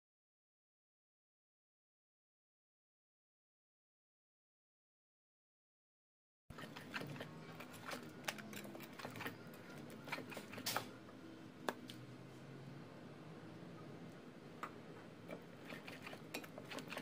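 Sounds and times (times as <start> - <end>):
whisk clicking against ceramic bowl: 15.6 - 17.0.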